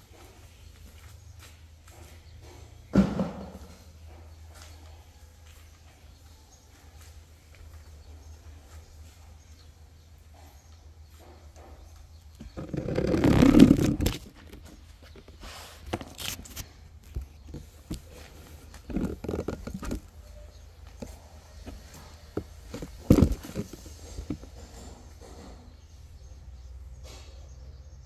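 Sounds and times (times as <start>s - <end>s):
knocks and rustles: 0.1s - 4.8s, 7.7s - 26.0s
footsteps on concrete: 10.4s - 24.6s.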